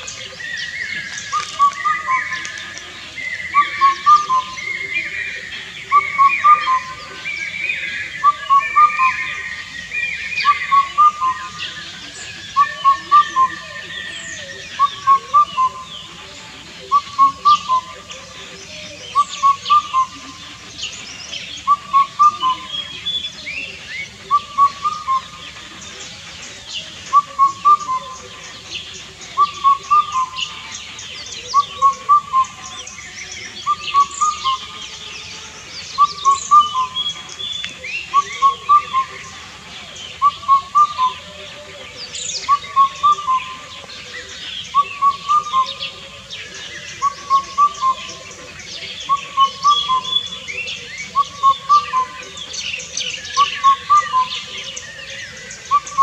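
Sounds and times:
cuckoo singing: 0.0 - 56.0
small birds chirping: 0.0 - 56.0.

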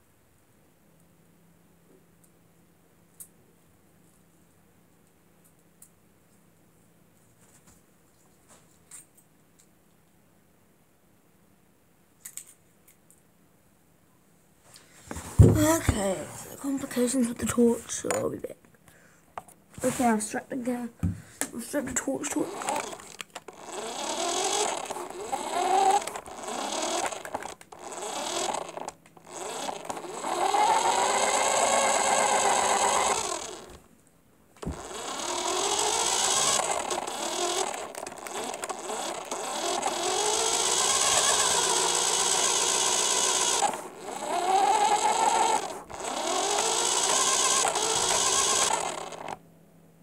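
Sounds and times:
toy car electric motor whining: 22.0 - 33.8, 34.6 - 49.4.

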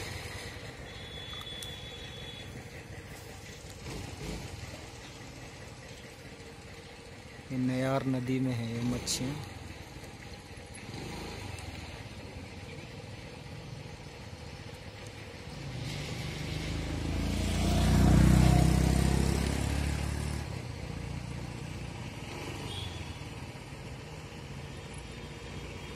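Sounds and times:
vehicle driving past: 15.2 - 22.7.

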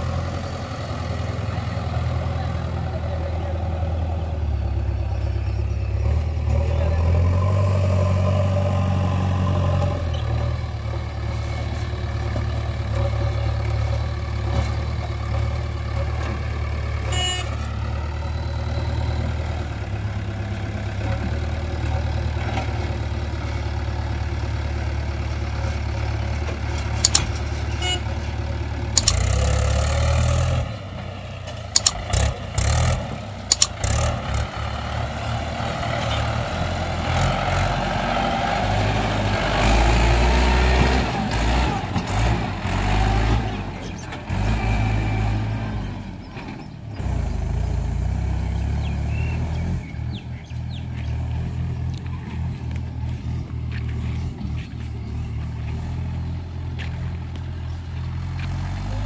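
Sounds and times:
diesel engines running: 0.0 - 59.0.

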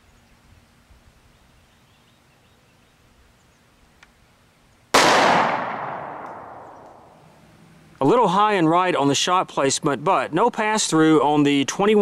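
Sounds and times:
faint outdoor background: 0.0 - 12.0
pistol shot echoing: 4.9 - 7.2.

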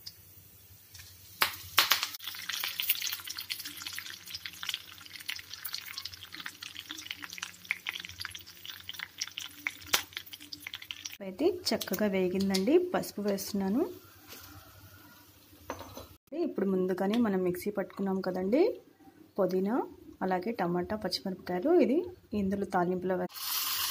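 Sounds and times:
leaves sizzling in hot oil: 0.0 - 15.7, 23.3 - 23.9.

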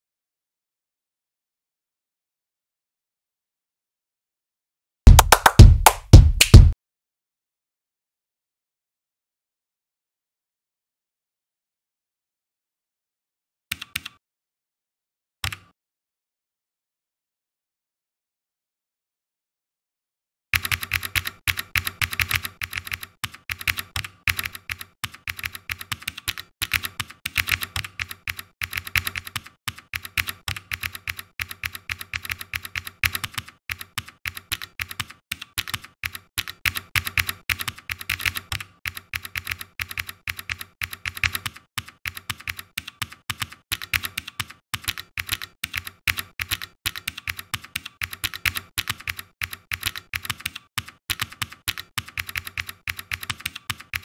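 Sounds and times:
typing on computer keyboard: 13.7 - 14.2, 20.6 - 54.0.

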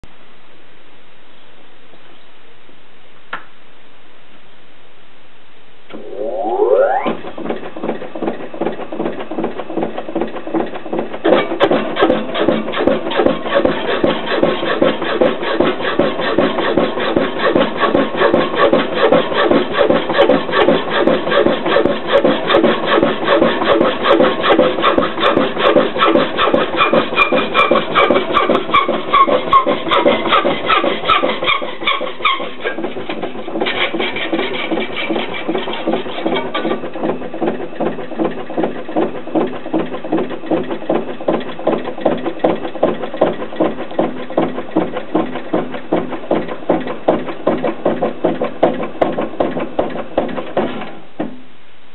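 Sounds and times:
power hacksaw cutting steel: 11.3 - 36.9.

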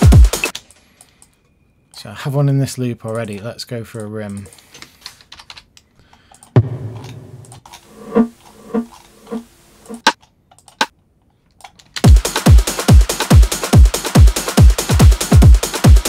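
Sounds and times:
rim-shot drum samples: 0.0 - 0.5, 6.6 - 7.6, 12.1 - 16.0
techno drum loop: 0.0 - 0.5, 6.6 - 7.6, 12.1 - 16.0.

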